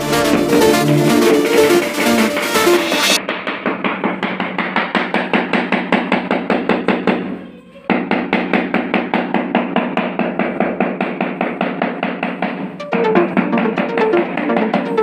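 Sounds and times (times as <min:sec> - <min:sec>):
music with fast tapping beat: 0:00.0 - 0:03.2, 0:12.3 - 0:15.0.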